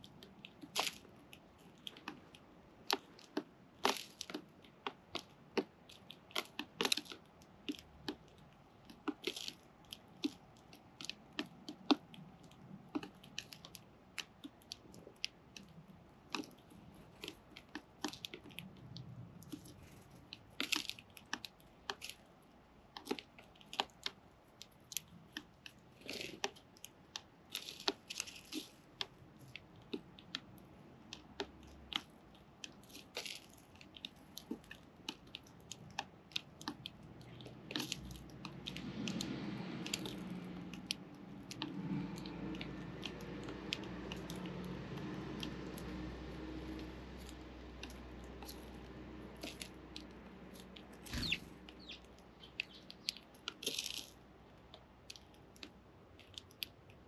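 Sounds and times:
sparrows cracking seed clicks: 49.4s - 54.2s.

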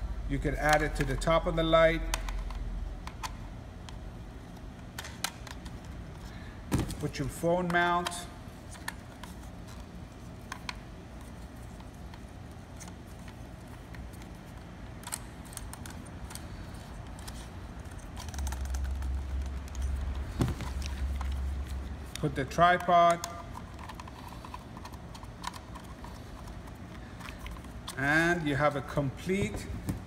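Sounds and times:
plastic parts clicking: 12.8s - 28.0s.

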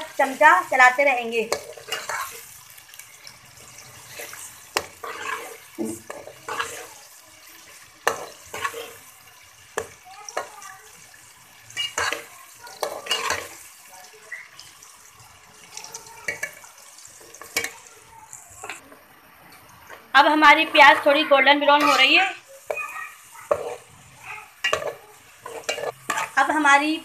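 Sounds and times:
faint sizzle: 0.0s - 27.0s
ladle scraping metal pot: 1.6s - 2.5s, 3.6s - 6.9s, 21.8s - 22.2s, 24.6s - 26.4s.

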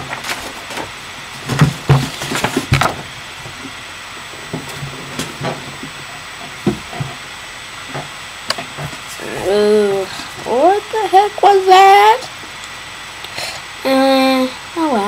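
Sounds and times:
paper handling rustles and knocks: 0.0s - 3.8s, 4.4s - 7.2s.

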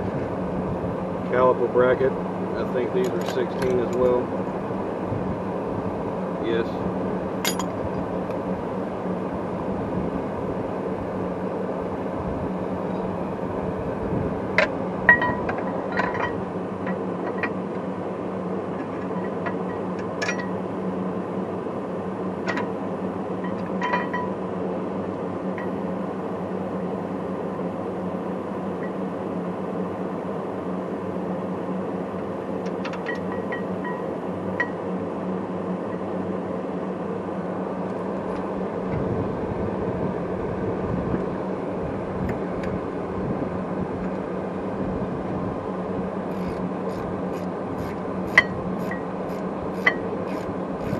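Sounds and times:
steady low hum: 0.0s - 50.9s
metallic clinks of tools: 7.4s - 7.7s.

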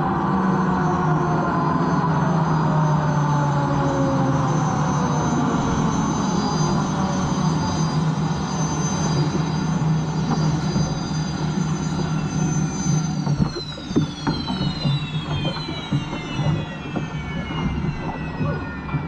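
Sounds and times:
turbine engine high whine: 0.0s - 19.0s
water noise: 5.3s - 19.0s.

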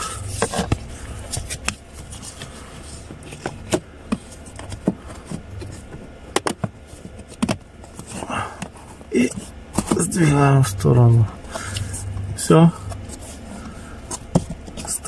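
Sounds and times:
plastic parts clicking and knocking: 3.4s - 10.0s.

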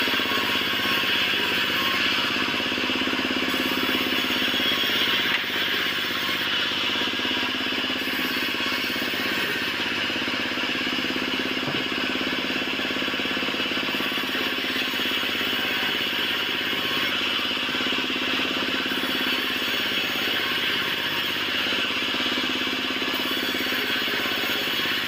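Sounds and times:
band saw cutting wood: 0.0s - 25.0s.

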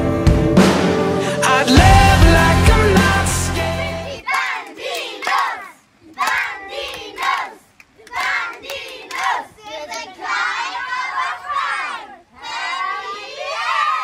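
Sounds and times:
group shouting rhythmic cheer: 3.0s - 14.0s.

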